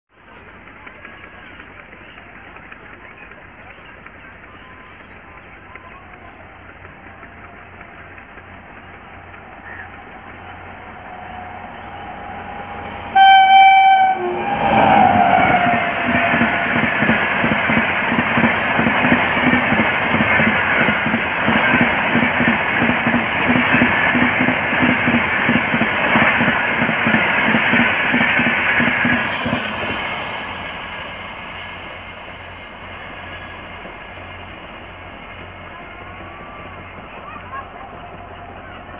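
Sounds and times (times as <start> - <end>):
train wheels beating on track: 0.1 - 38.9
train rushing past: 0.2 - 38.9
locomotive horn: 11.1 - 16.4.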